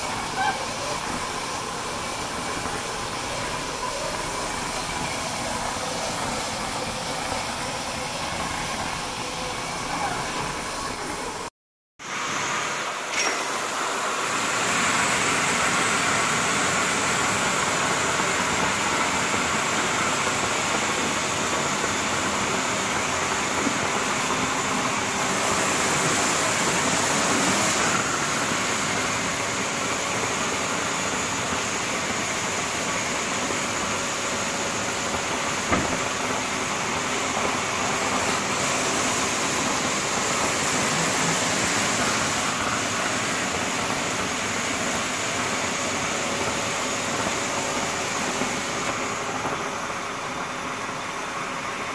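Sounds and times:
hiss of spray jets: 0:12.0 - 0:51.9
brief knock: 0:35.7 - 0:36.0.

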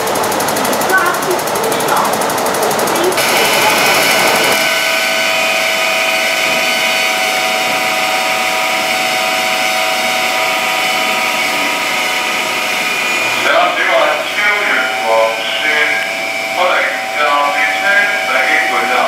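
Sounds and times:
electric train whine: 0:00.0 - 0:19.0
hiss: 0:03.2 - 0:10.1.

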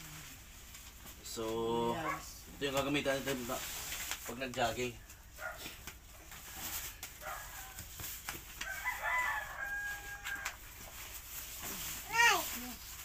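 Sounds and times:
plastic trousers rustling: 0:00.4 - 0:13.0
rooster crowing: 0:08.6 - 0:10.6.

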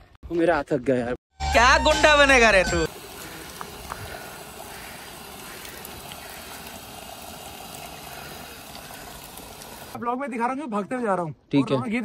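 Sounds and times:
open-air hiss: 0:02.8 - 0:10.0.

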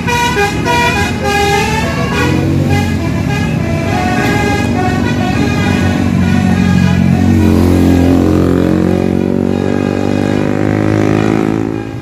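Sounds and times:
bus engine passing: 0:00.0 - 0:12.0
multi-tone bus horn: 0:00.0 - 0:12.0.

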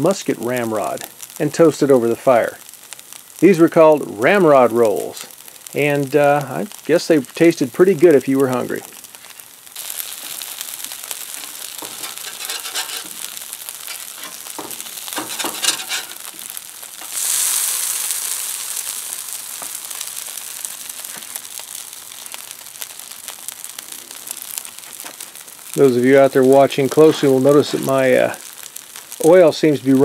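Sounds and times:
food sizzling in oil: 0:00.0 - 0:30.0
crackling oil pops: 0:08.8 - 0:25.8.

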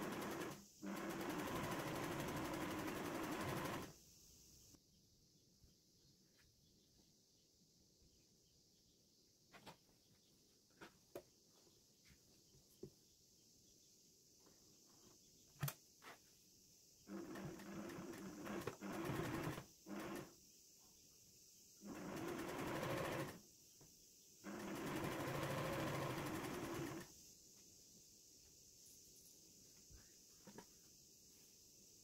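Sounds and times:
sewing machine stitching: 0:00.0 - 0:03.9, 0:17.1 - 0:20.3, 0:21.8 - 0:23.4, 0:24.4 - 0:27.1.

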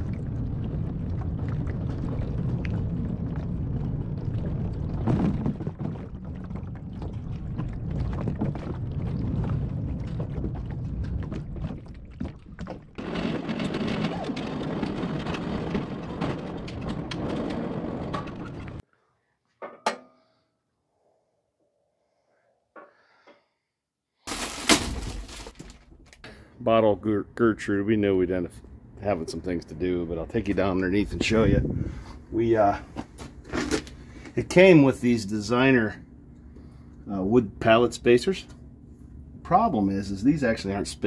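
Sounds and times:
knocks and rattles: 0:04.8 - 0:18.8
wind on microphone: 0:31.0 - 0:32.2.

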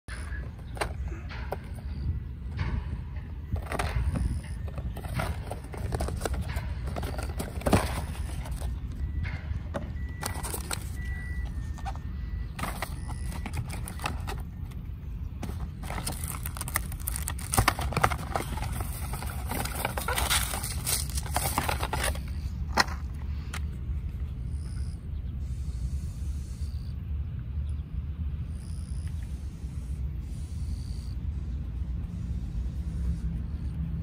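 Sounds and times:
cardboard box being handled: 0:04.9 - 0:08.8, 0:10.2 - 0:12.0, 0:12.6 - 0:14.6, 0:15.4 - 0:22.4.

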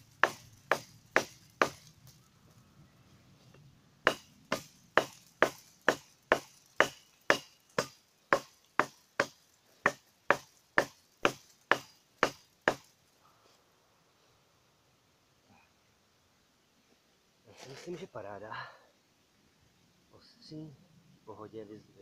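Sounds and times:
cleaver chopping wood: 0:00.2 - 0:01.9, 0:04.1 - 0:12.9.

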